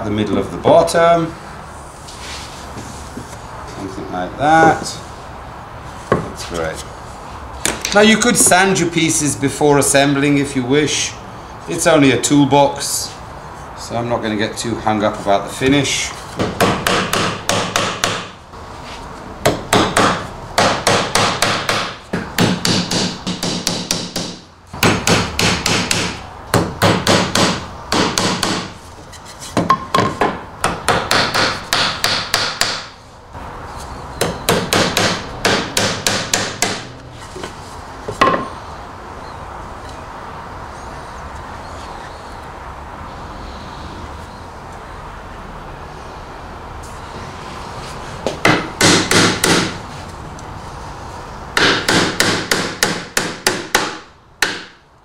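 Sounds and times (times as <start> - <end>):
hammer driving nails into wood: 16.4 - 18.3, 19.4 - 28.7, 29.6 - 32.9, 34.2 - 36.9, 48.4 - 49.8, 51.6 - 54.8.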